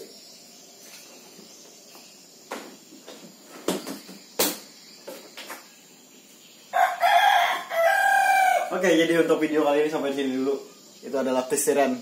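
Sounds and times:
rooster crowing: 6.7 - 8.8.

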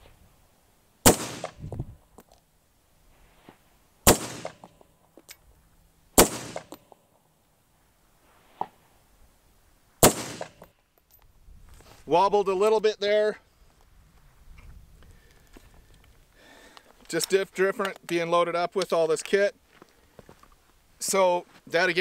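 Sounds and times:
rifle shots with echo: 1.0 - 1.6, 4.0 - 4.7, 6.2 - 6.8, 10.0 - 10.7.

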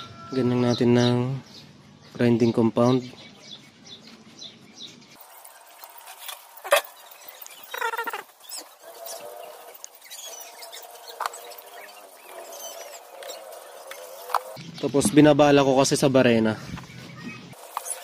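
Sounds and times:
birds chirping: 0.0 - 18.0
valve grinding in cylinder head: 5.2 - 14.6.

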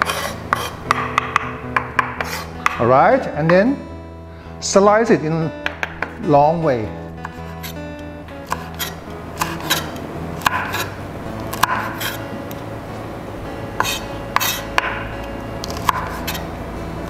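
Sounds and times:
knife knocking on wooden board: 5.6 - 6.2.

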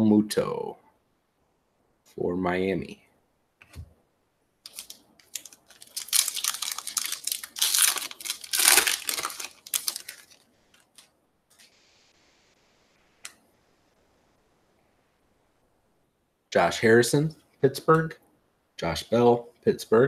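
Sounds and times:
wrapper crinkling and tearing: 4.7 - 11.1.

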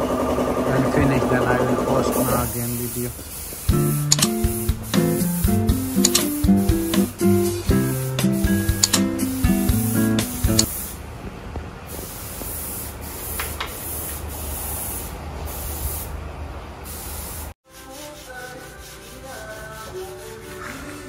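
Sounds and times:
paint spray gun hissing: 2.0 - 11.0, 11.9 - 16.2, 16.9 - 17.6.

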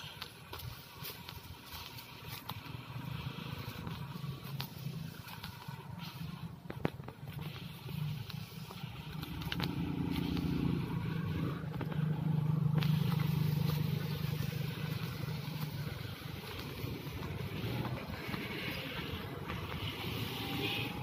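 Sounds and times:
small truck driving by: 7.4 - 21.0.

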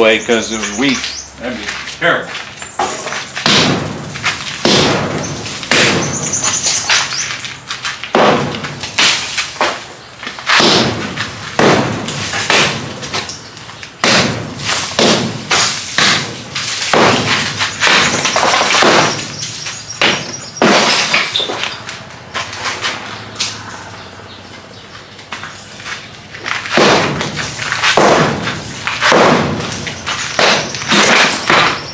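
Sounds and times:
hammer striking cement wall: 3.4 - 3.9, 4.6 - 6.2, 8.1 - 9.8, 10.5 - 13.3, 14.0 - 19.3, 20.0 - 21.3, 26.7 - 31.8
debris crumbling and falling: 11.0 - 22.0, 26.3 - 31.9.

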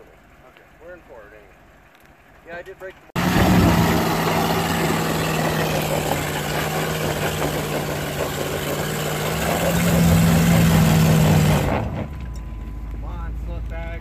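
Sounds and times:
engine revving under load: 3.2 - 12.5
wheels spinning on loose rock: 3.6 - 12.2.

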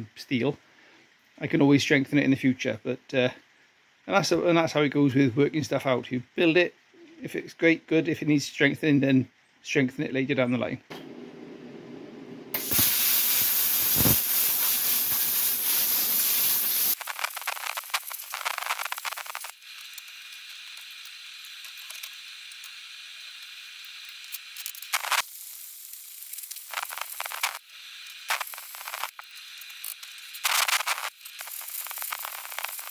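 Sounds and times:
plasma cutter hissing: 12.5 - 32.9.

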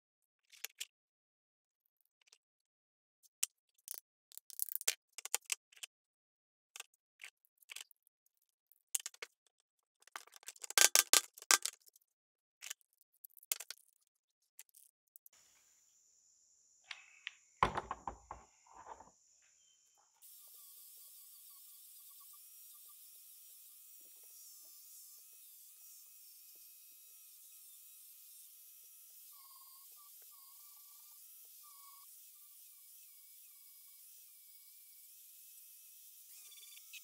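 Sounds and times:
clamps closing knocks: 17.6 - 19.1.

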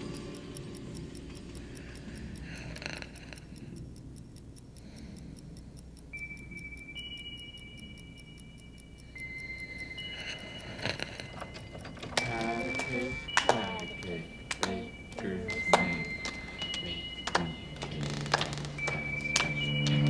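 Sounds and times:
clock ticking: 0.0 - 20.0
high held tones: 6.0 - 20.0.

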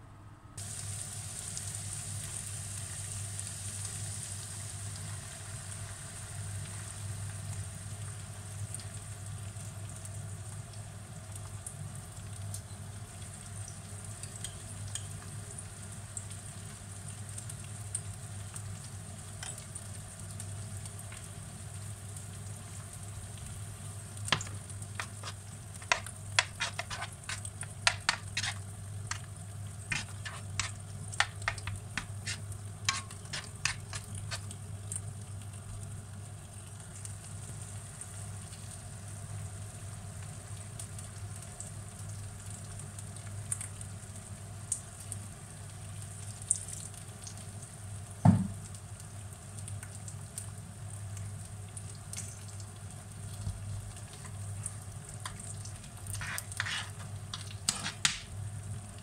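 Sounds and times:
mushrooms and onions sizzling: 0.6 - 11.9, 12.5 - 59.0
metal spoon scraping a pan: 24.3 - 34.6, 56.0 - 58.3
dull knock: 48.3 - 48.6.

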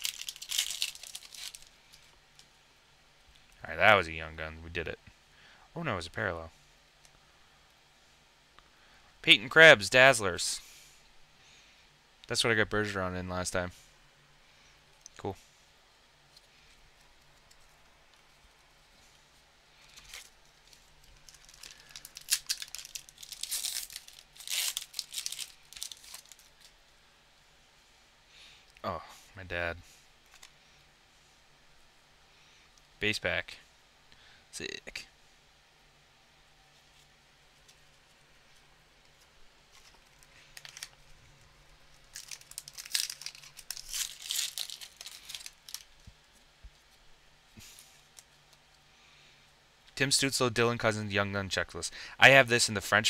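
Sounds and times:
plastic wrapper crinkling: 0.0 - 2.5, 19.8 - 26.8, 30.2 - 30.6, 36.9 - 47.0.

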